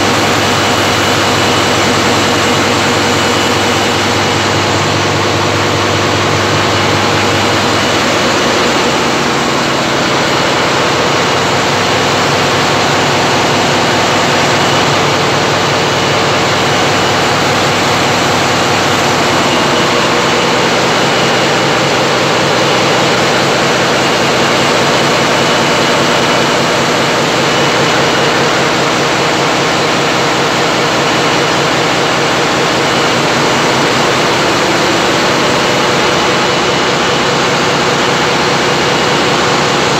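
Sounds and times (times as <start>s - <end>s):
low hum: 0.0s - 24.0s
heavy engine machinery droning: 0.0s - 39.9s.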